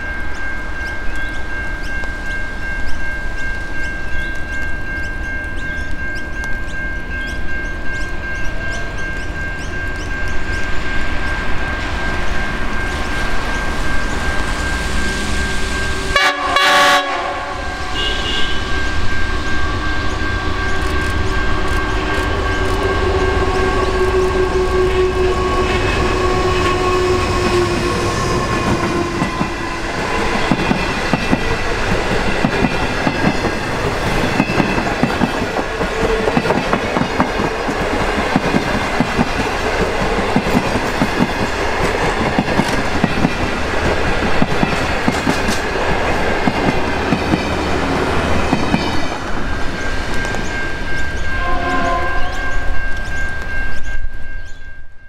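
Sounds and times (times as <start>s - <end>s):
diesel locomotive engine running: 0.6s - 52.3s
train horn blast: 14.1s - 31.9s, 51.2s - 52.9s
train wheels clacking over rail joints: 20.7s - 50.6s.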